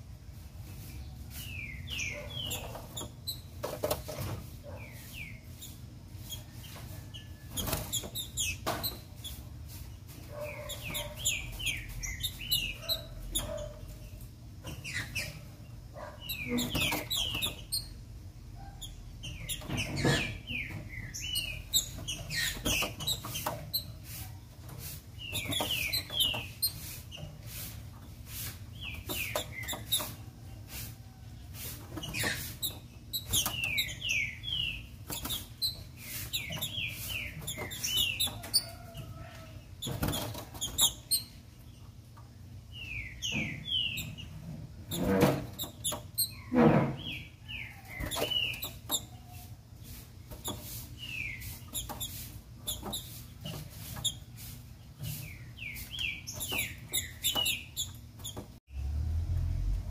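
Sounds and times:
bird fluttering in cage: 5.6 - 9.8, 39.8 - 41.2.

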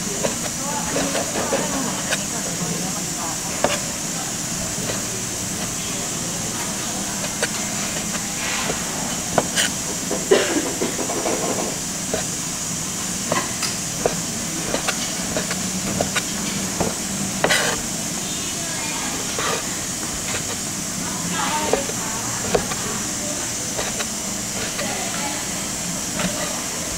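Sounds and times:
steady hiss: 0.0 - 26.9
knife chopping on wooden board: 0.2 - 2.3, 3.6 - 3.9, 7.2 - 12.4, 13.3 - 17.8, 21.7 - 22.8, 23.7 - 25.0.

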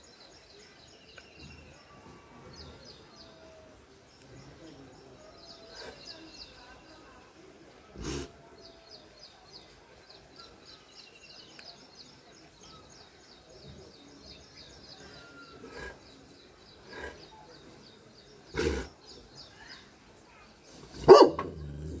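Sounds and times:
dog barking deeply: 20.9 - 22.0.

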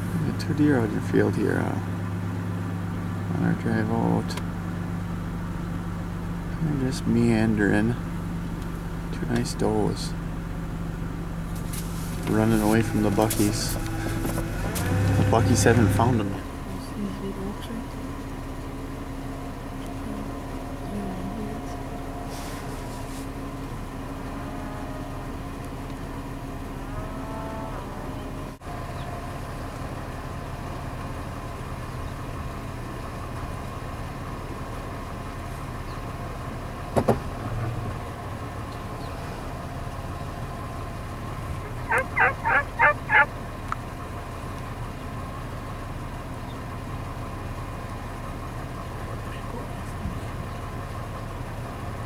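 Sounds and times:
steady low hum: 0.0 - 52.0
turkey yelping: 41.5 - 43.4.

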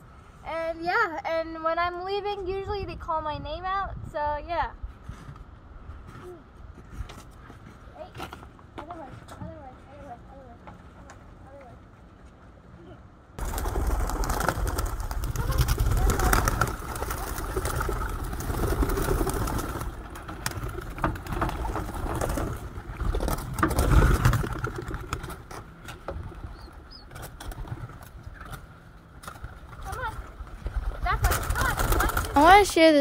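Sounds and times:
pigeons cooing: 13.4 - 32.6
pigeons flapping wings: 13.4 - 33.0.

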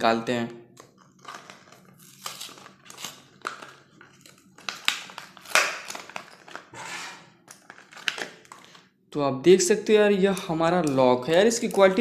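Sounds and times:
plastic packaging crinkling: 0.8 - 6.8, 7.4 - 8.9.

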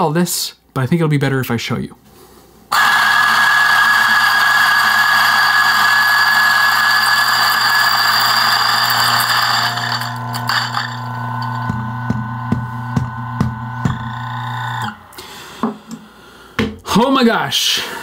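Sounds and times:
grinder motor hum: 2.7 - 15.2
coffee beans rattling in grinder: 2.8 - 11.8.

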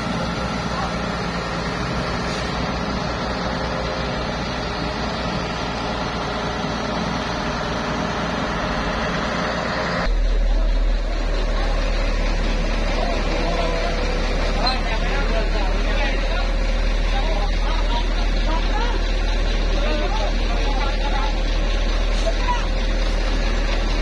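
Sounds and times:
concrete pump engine running: 0.0 - 24.0
deep heavy rumble: 0.0 - 24.0.

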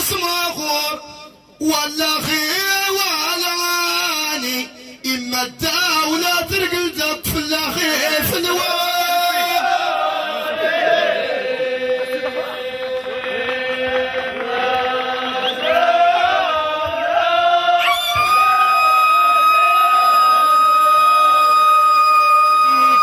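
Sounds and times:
men chanting in unison: 6.1 - 17.8.

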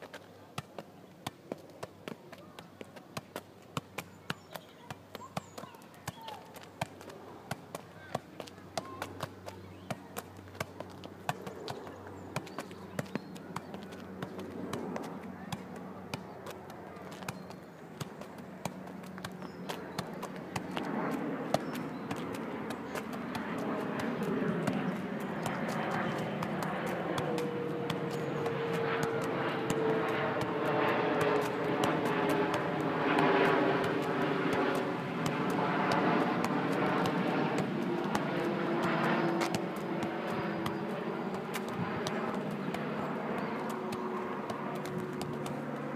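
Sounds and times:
football being kicked: 3.2 - 20.9, 21.5 - 30.6, 33.8 - 45.6
aircraft engine drone: 18.3 - 45.9.

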